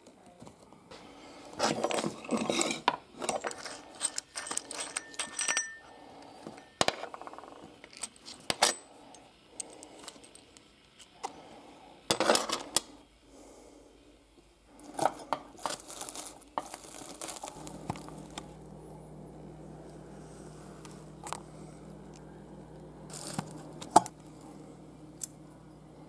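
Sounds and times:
small metal parts clinking on glass: 0:01.8 - 0:08.9.

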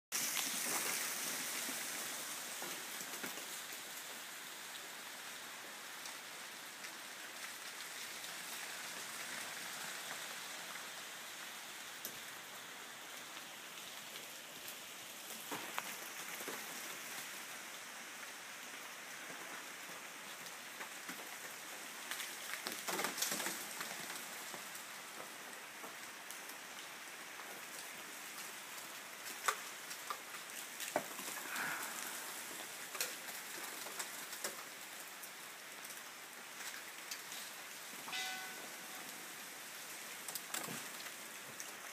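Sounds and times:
crackling rattle of ice: 0:00.2 - 0:03.6, 0:22.1 - 0:24.6, 0:29.2 - 0:34.7
ice and drips pattering: 0:00.2 - 0:04.0, 0:27.4 - 0:39.2.

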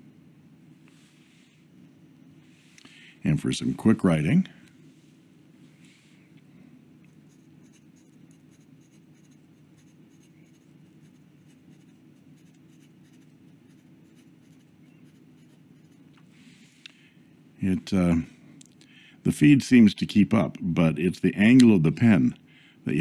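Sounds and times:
pen nib scratching paper: 0:07.1 - 0:16.1.

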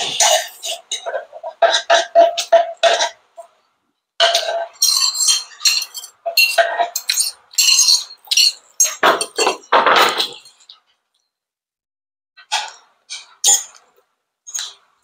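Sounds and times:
cutlery clinking on plate: 0:04.2 - 0:10.6.

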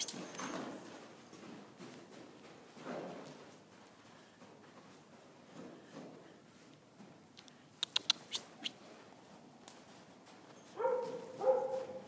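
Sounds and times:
sharp clicks: 0:07.4 - 0:08.8.

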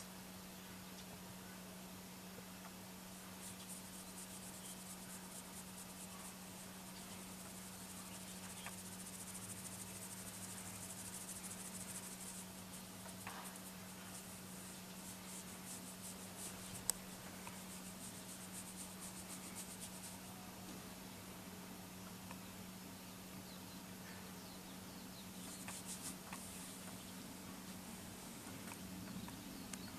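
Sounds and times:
steady low hum: 0:00.0 - 0:29.9
fingers scratching cat fur: 0:03.4 - 0:20.2, 0:25.4 - 0:27.0.

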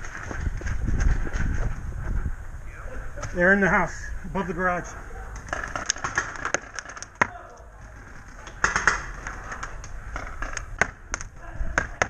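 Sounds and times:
paintball markers firing: 0:05.4 - 0:07.6, 0:08.4 - 0:12.0.

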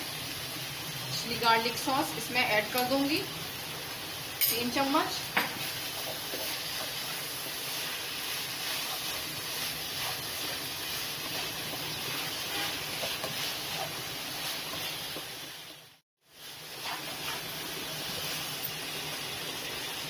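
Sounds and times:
vegetables sizzling in a pan: 0:00.0 - 0:20.0
spatula scraping ticks: 0:08.6 - 0:15.3.

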